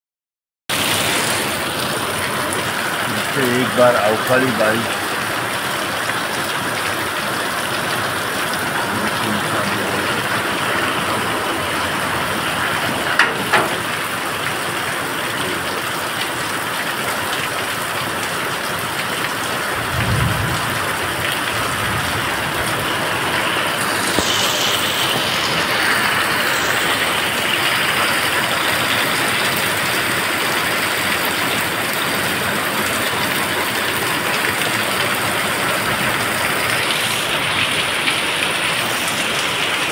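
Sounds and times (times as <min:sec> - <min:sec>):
heavy rain on road and roof: 0:00.7 - 0:39.9
sharp knocks: 0:13.2 - 0:13.9
low rumble: 0:19.7 - 0:23.8.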